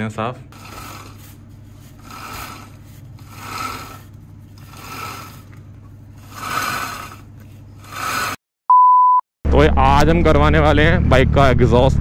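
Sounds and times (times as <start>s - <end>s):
steady low hum: 0.0s - 8.4s
brush scrubbing a chain: 0.6s - 8.4s.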